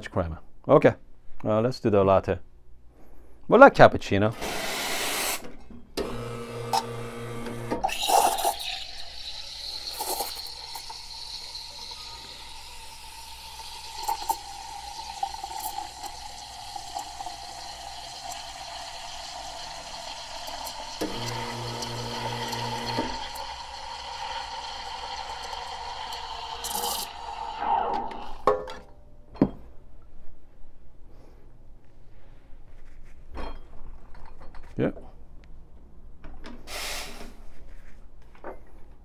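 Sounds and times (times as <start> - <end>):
steam wand hissing: 36.7 - 37.3
steam blast: 36.7 - 37.4.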